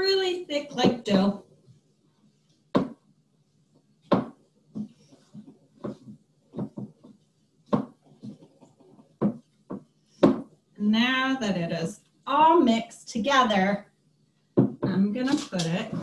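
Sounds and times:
spatula knocking in thick dough: 0:02.8 - 0:03.0, 0:04.1 - 0:10.5, 0:14.6 - 0:15.1.

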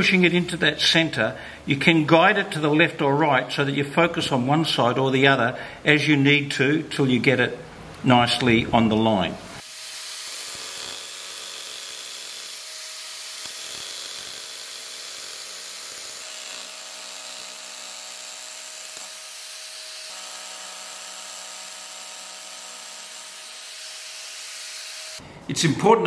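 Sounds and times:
power chisel cutting wood: 0:09.6 - 0:25.2.

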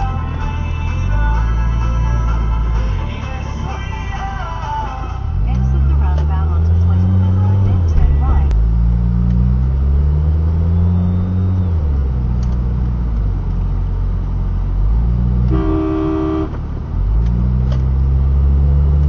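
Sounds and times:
car engine accelerating: 0:00.0 - 0:19.0
car horn: 0:15.5 - 0:16.7.

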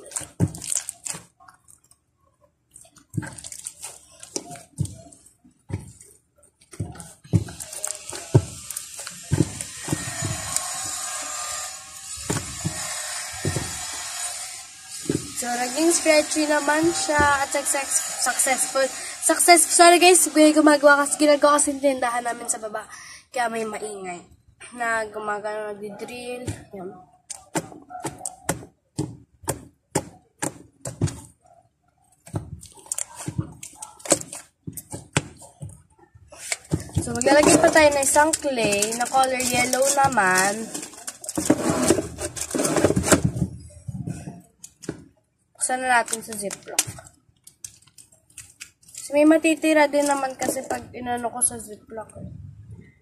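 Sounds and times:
knocks and thuds: 0:06.7 - 0:11.1, 0:12.2 - 0:15.4.

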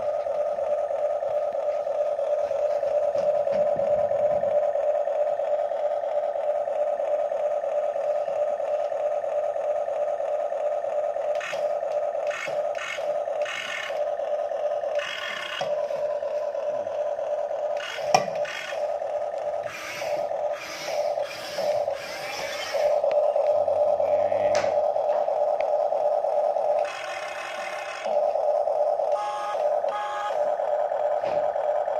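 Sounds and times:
motors whirring and scraping: 0:00.0 - 0:31.9
toy excavator high-pitched hum: 0:00.0 - 0:31.9.

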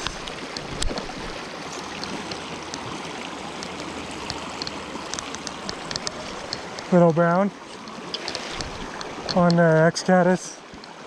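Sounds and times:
creek rushing over rocks: 0:00.0 - 0:11.0
faint ticks: 0:01.7 - 0:06.9, 0:07.7 - 0:09.8, 0:10.7 - 0:11.0.

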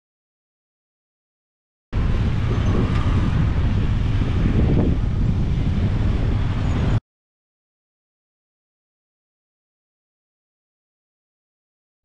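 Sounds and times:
road traffic passing: 0:02.0 - 0:07.0
wind buffeting microphone: 0:02.0 - 0:07.0.

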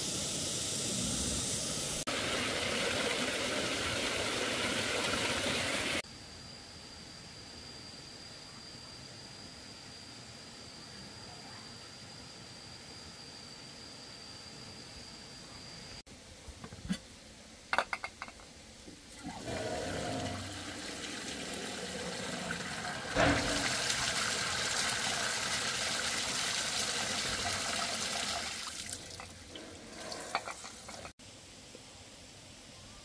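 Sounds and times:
water running: 0:02.0 - 0:06.0, 0:19.1 - 0:31.2.

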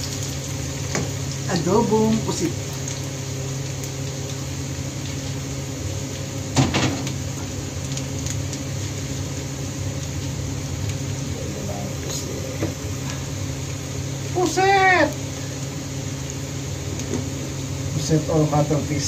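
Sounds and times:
garlic sizzling in hot oil: 0:00.0 - 0:19.0
low hum: 0:07.2 - 0:17.9.

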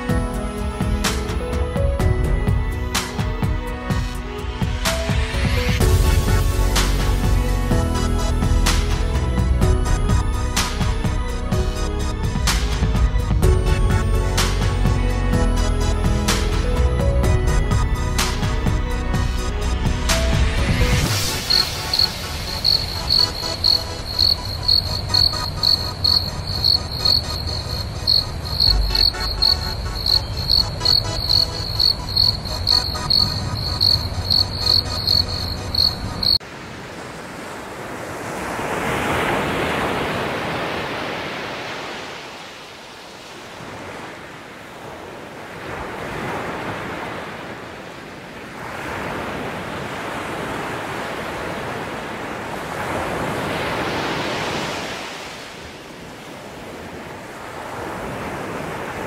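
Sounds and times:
insect chirping: 0:21.3 - 0:36.4.

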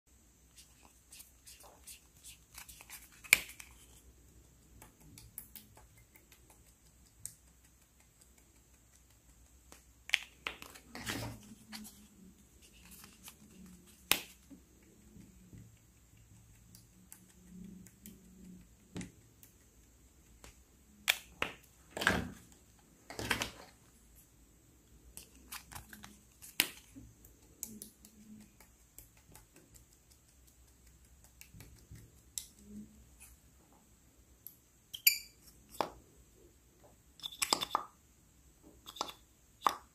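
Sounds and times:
plastic pen caps clicking: 0:37.2 - 0:37.9, 0:38.8 - 0:39.8.

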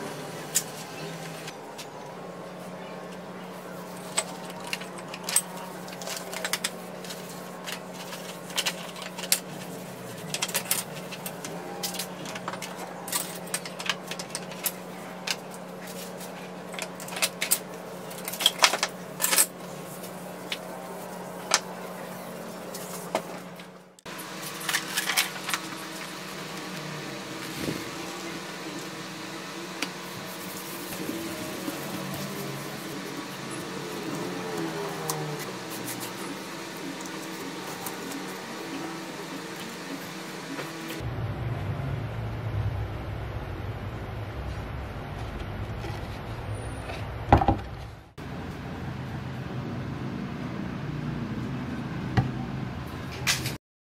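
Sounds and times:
steady low hum: 0:00.0 - 0:53.2
cloth rubbing on plastic sheet: 0:30.0 - 0:38.6.

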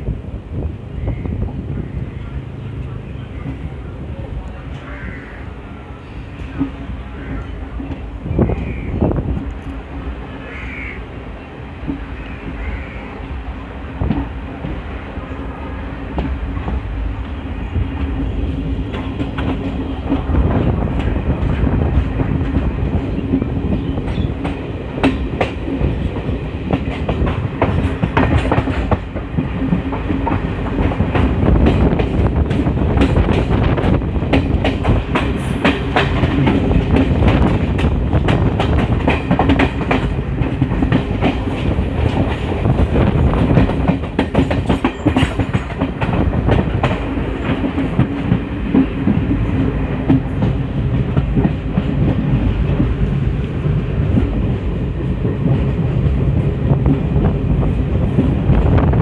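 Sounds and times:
train rumbling along track: 0:00.0 - 0:59.0
wheels clicking over rail joints: 0:16.1 - 0:58.8.

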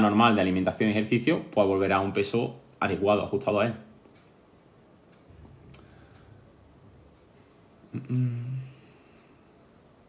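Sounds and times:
man humming: 0:07.8 - 0:09.0.

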